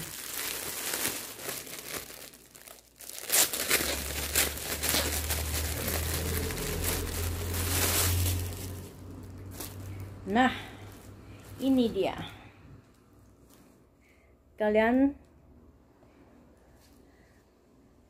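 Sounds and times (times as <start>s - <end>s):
plastic bag crinkling: 0.0s - 12.5s.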